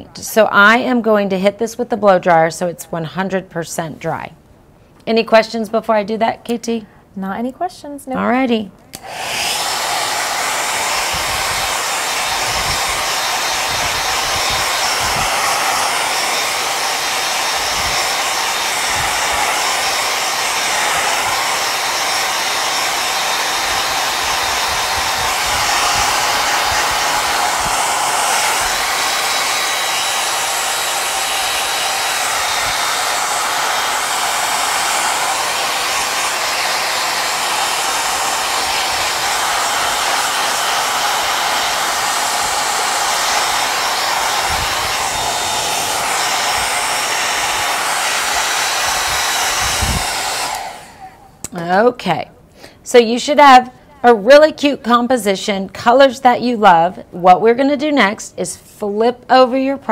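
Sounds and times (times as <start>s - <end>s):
hair dryer blowing: 8.9s - 51.9s.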